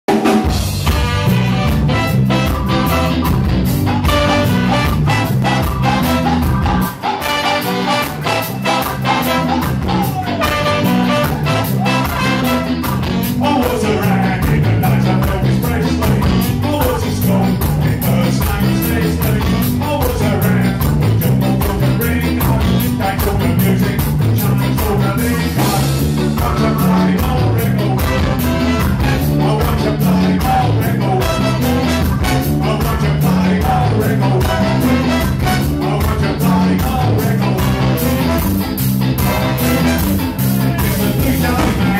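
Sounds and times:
saxophone: 0.1 - 14.2, 27.8 - 41.9
brass horn: 0.1 - 41.9
drum kit: 0.1 - 41.9.

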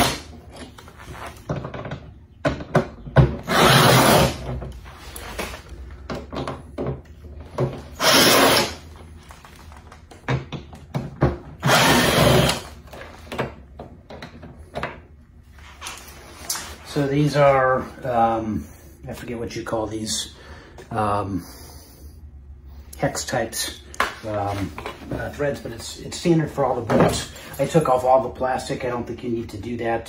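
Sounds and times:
cordless drill running: 3.4 - 4.4, 7.9 - 8.8, 11.6 - 12.7.

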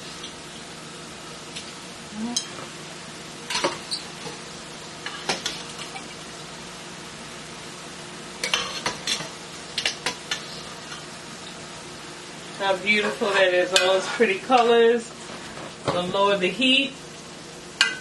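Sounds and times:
food sizzling: 0.0 - 18.0
metal spoon scraping a skillet: 8.4 - 11.1, 12.9 - 14.7.

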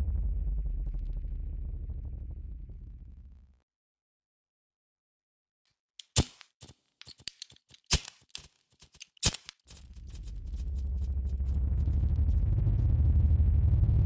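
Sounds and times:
low droning hum: 0.0 - 3.6, 9.7 - 14.0
sharp clicks and crackles: 6.0 - 11.6.

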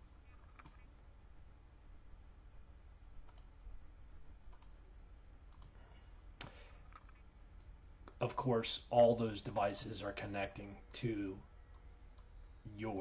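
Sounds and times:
computer mouse clicks: 3.2 - 3.5, 4.5 - 4.8, 5.5 - 5.8, 6.4 - 7.8.

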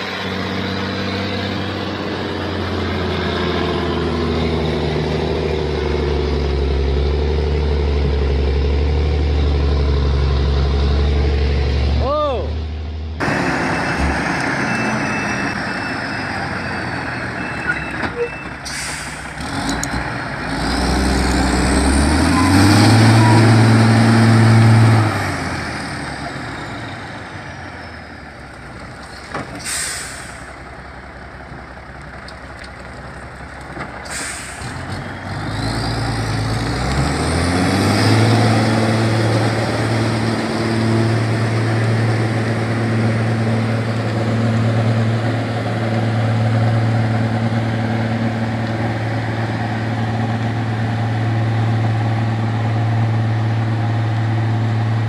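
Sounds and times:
truck diesel engine revving: 0.0 - 32.5, 33.3 - 55.0
hiss bursts: 29.6 - 30.5.

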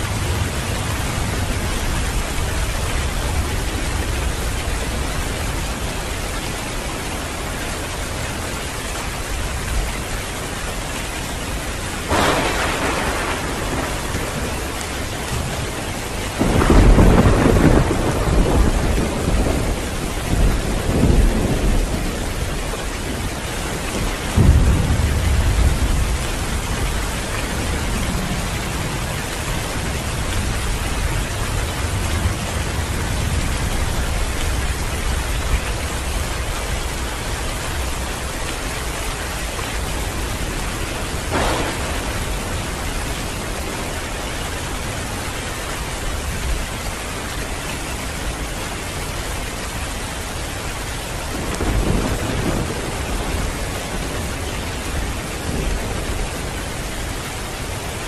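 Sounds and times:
heavy rain: 0.0 - 58.0
thunder: 12.0 - 35.5, 40.1 - 44.2, 51.2 - 56.8.

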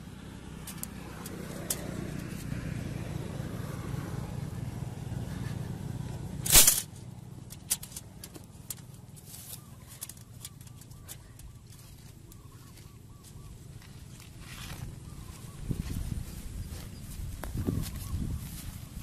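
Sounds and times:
vehicle engine hum: 0.0 - 19.0
wire clicking against mesh: 0.6 - 2.5, 6.4 - 12.5.

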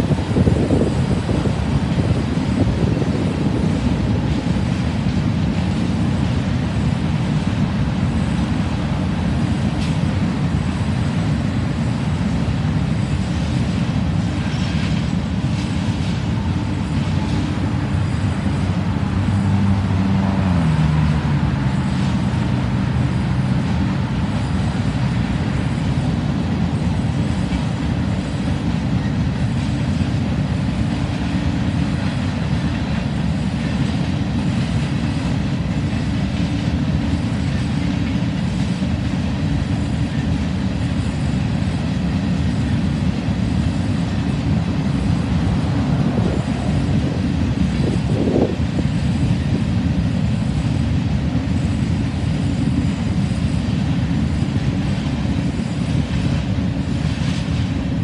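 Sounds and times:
road traffic: 0.0 - 58.0
train cars rolling past: 0.0 - 58.0
passing vehicle engine: 18.5 - 24.2.

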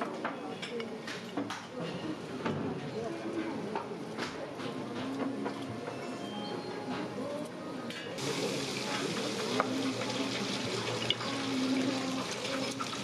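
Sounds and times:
food deep-frying in hot oil: 8.2 - 13.0.

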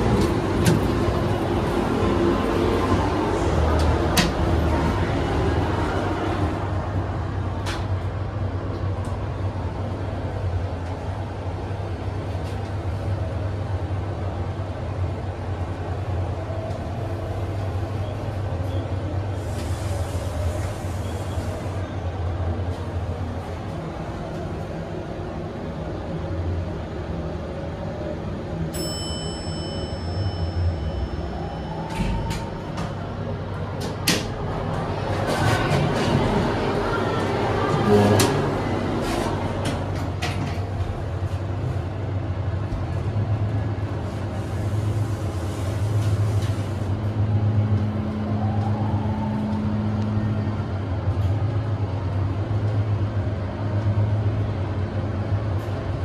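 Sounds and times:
elevator door clunk: 0.0 - 1.4, 31.7 - 36.6
elevator hum and rumble: 0.0 - 56.0.

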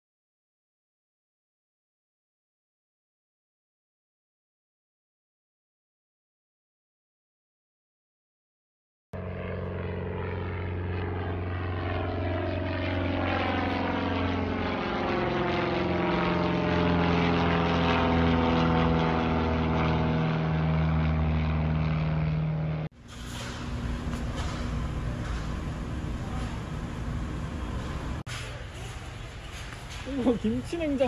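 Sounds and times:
propeller airplane droning: 9.2 - 31.0
steady noise: 23.0 - 28.2.

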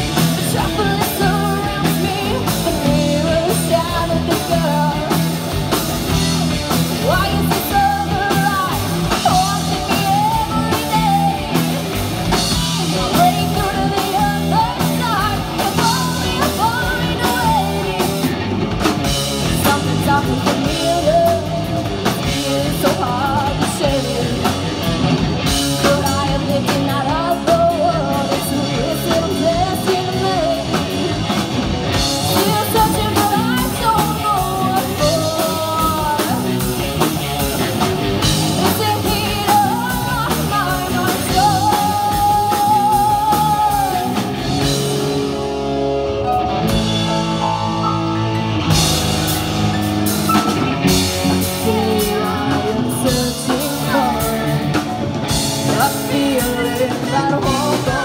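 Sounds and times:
woman singing lead: 0.0 - 45.5, 50.3 - 58.0
bass guitar: 0.0 - 58.0
drum kit: 0.0 - 58.0
electric guitars: 0.0 - 58.0.

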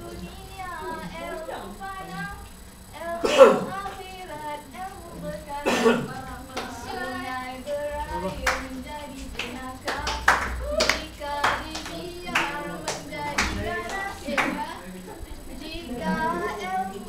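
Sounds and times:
hand claps: 6.4 - 14.8.

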